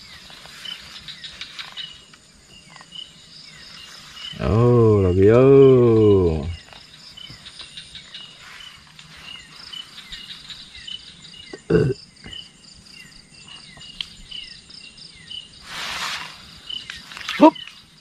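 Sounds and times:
crickets chirping: 0.0s - 18.0s
person grunting: 4.4s - 6.6s, 11.6s - 12.0s.

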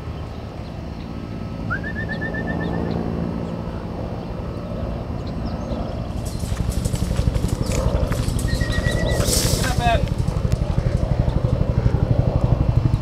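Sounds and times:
bird call: 1.7s - 3.0s, 8.4s - 9.3s
low rumble: 5.8s - 13.0s.

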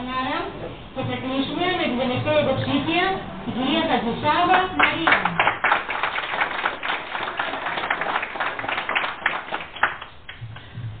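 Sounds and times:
small group applauding: 4.5s - 10.7s.

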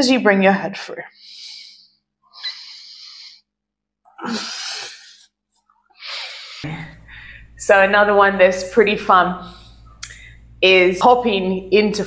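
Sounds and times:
woman breathing: 1.1s - 3.5s, 4.2s - 7.6s, 9.4s - 10.6s.

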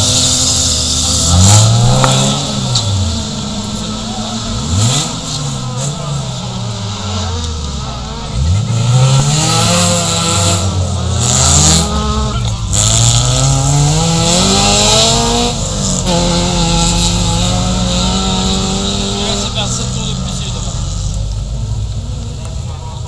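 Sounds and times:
race car engines at full throttle: 0.0s - 23.0s.

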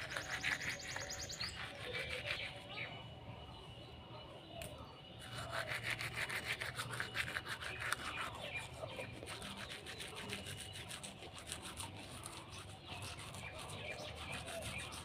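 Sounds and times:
toothbrush scrubbing teeth: 5.2s - 15.0s.

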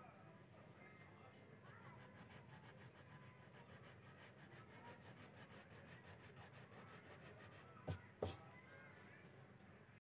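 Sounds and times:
crayon scratching on paper: 1.6s - 8.4s.

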